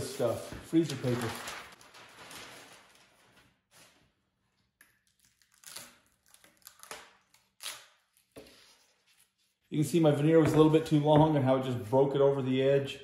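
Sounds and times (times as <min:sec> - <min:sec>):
paper rustling and crinkling: 0:00.0 - 0:04.1.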